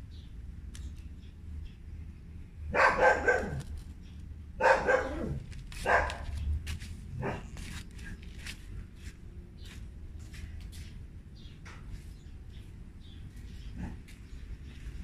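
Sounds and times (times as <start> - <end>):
dog barking: 2.7 - 3.6, 4.6 - 6.4, 7.2 - 7.6.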